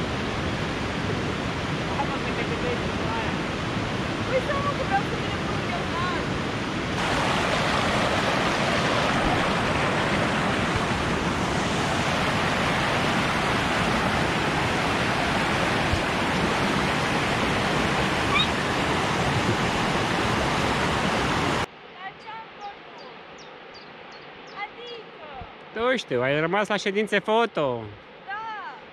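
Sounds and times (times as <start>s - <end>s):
stream rushing over rocks: 0.0s - 21.7s.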